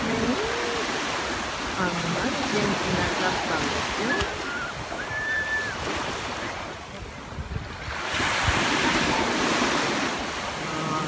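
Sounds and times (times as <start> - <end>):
small waves breaking on sand: 0.0 - 11.0
wind buffeting microphone: 0.0 - 11.0.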